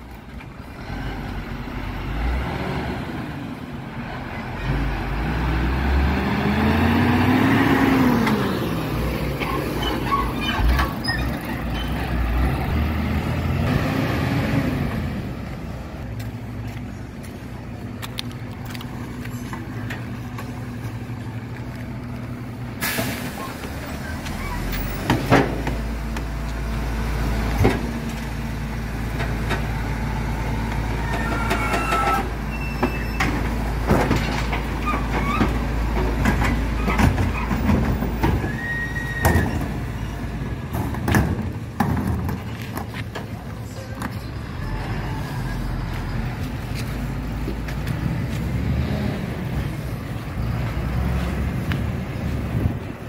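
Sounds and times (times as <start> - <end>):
diesel truck engine rumbling: 0.0 - 53.0
air brake burst: 22.8 - 23.5.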